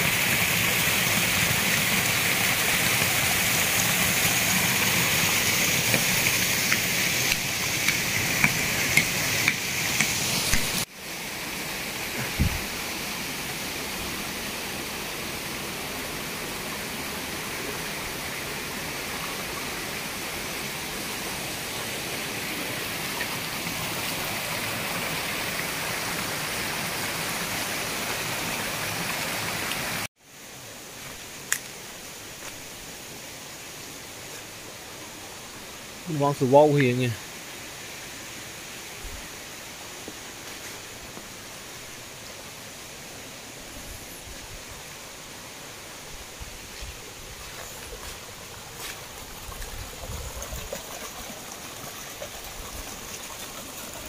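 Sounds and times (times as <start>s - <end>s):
waterfall rushing: 0.0s - 30.1s.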